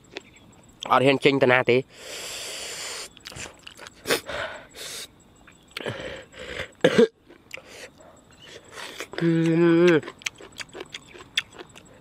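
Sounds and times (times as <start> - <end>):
hissing breath: 1.9 - 5.1
quick breaths: 1.9 - 5.1, 5.8 - 6.8
man chewing food: 2.2 - 12.0.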